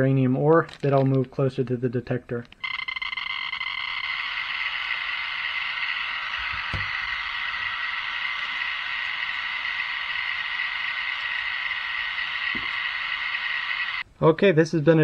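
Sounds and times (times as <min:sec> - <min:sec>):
radiation meter clicking rapidly: 0:02.5 - 0:14.0.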